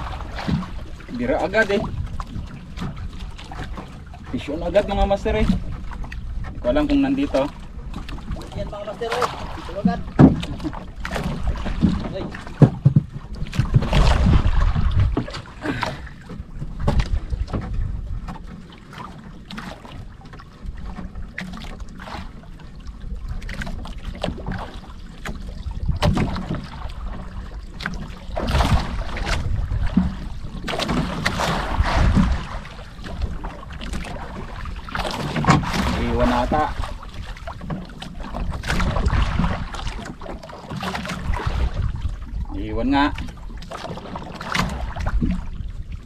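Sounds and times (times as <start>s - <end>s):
wind buffeting microphone: 0.0s - 18.4s, 25.6s - 40.2s, 41.1s - 43.4s
water slapping against boat hull: 0.0s - 46.0s.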